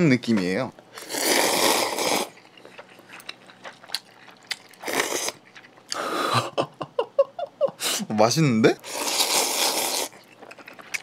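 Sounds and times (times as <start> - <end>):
soft chewing: 0.8 - 6.1, 8.9 - 11.0
noodles slurped: 1.0 - 6.2, 8.8 - 11.0.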